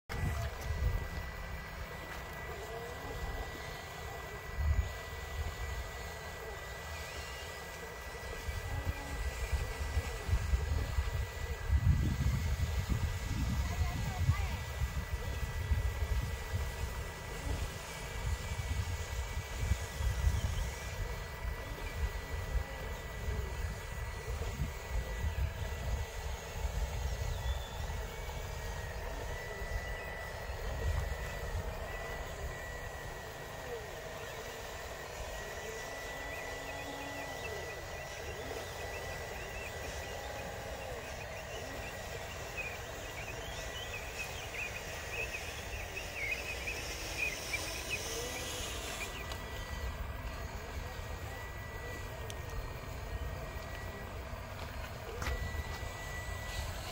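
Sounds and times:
faint high-pitched whine: 0.1s - 56.9s
wind buffeting microphone: 8.4s - 33.3s.

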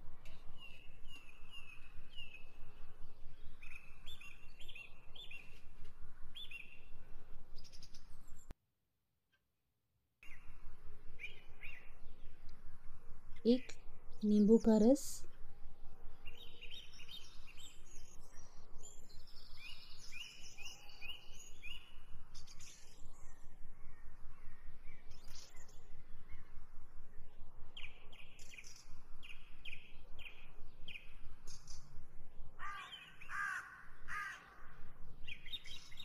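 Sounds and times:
small birds chirping: 0.1s - 8.5s, 11.2s - 32.0s, 32.6s - 36.0s
crow cawing: 32.6s - 34.8s.

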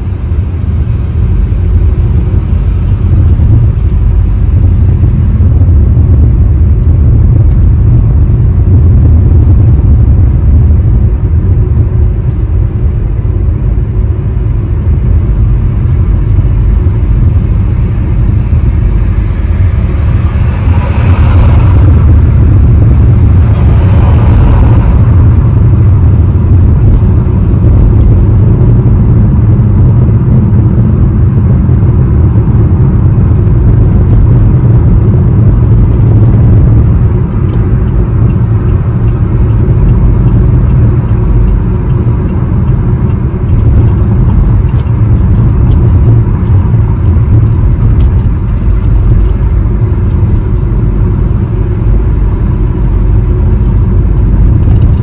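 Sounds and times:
car road and engine rumble: 0.0s - 55.0s.

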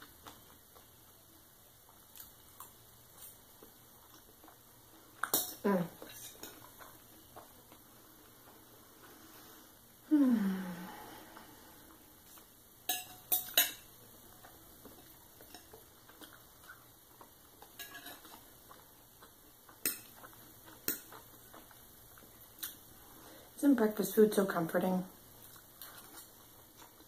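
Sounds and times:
sharp cutlery clinks: 12.9s - 13.8s, 17.8s - 18.3s
cutlery scraping a ceramic plate: 17.8s - 18.4s.

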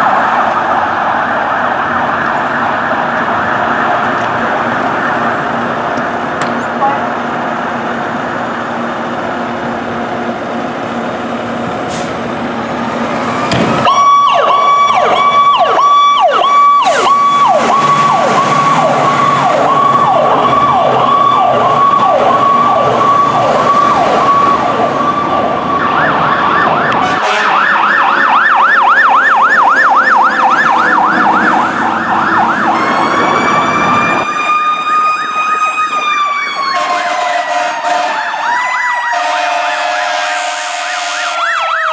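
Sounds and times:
fire truck siren: 0.0s - 41.9s.

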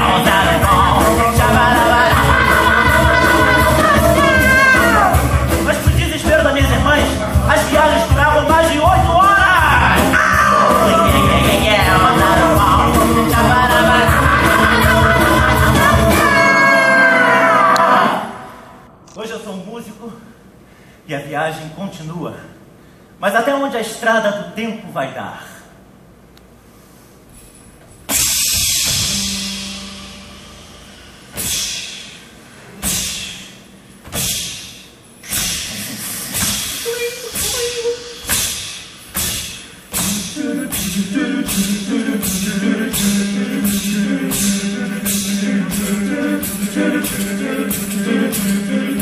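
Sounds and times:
male chorus singing: 0.0s - 5.7s, 9.8s - 18.4s, 40.0s - 49.0s
low bass line: 9.7s - 16.3s, 28.8s - 31.4s
steam train hissing: 28.1s - 30.0s, 30.9s - 33.6s, 34.2s - 45.8s.

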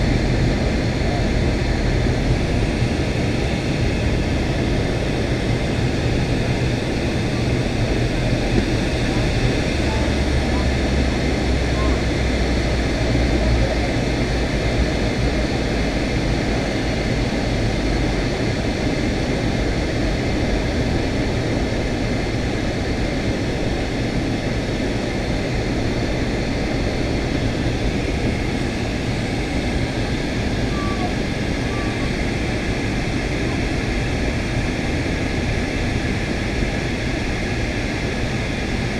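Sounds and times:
airliner cabin engine rush: 0.0s - 38.9s.

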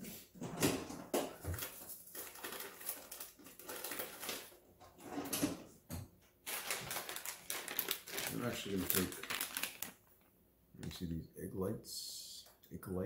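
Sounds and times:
things shifted on fridge shelves: 0.0s - 9.6s
plastic package crinkling: 1.5s - 4.6s, 6.4s - 10.3s.

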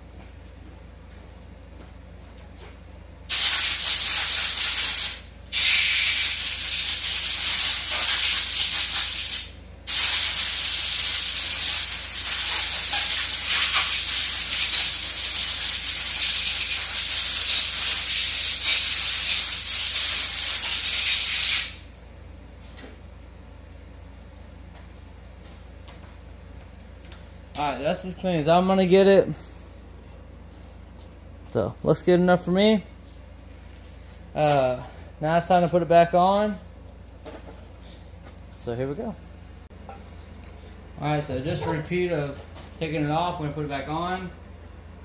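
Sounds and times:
compressed air blow gun hissing: 3.3s - 21.8s.

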